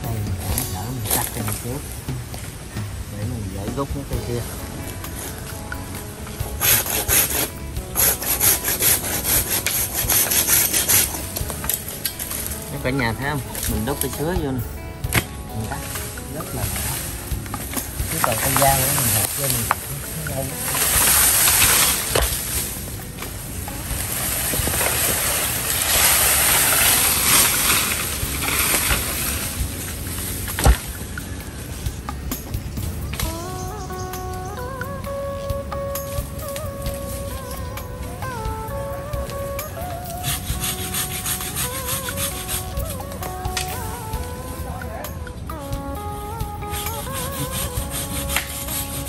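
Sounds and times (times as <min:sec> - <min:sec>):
hand saw cutting bamboo: 0:06.6 - 0:14.4, 0:24.0 - 0:29.5, 0:40.2 - 0:43.0, 0:46.8 - 0:49.0.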